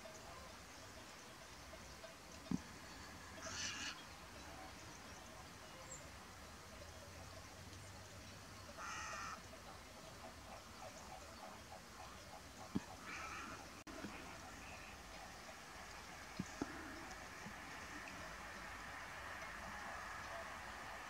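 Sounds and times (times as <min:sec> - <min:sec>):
harsh bird calls: 0:00.0 - 0:06.2, 0:08.2 - 0:21.0.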